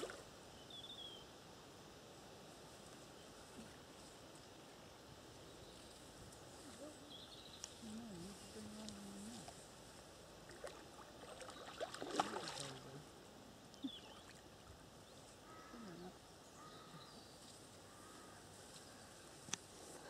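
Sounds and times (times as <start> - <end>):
fish splashing at surface: 10.5 - 12.8.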